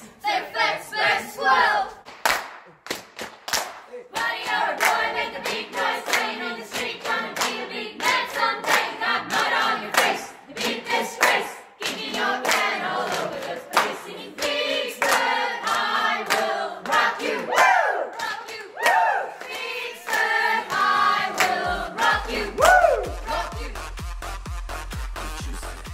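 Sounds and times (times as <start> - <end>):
group of people singing: 0.0 - 2.0, 4.1 - 23.8
hand claps: 2.0 - 21.6.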